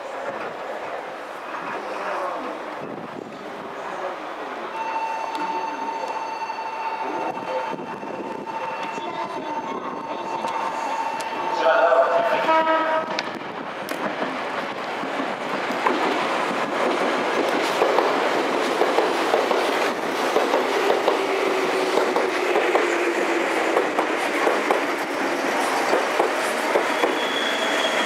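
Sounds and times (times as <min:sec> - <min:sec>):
electric train rumbling: 0:00.0 - 0:28.0
train wheels squealing: 0:04.8 - 0:11.5, 0:26.3 - 0:28.0.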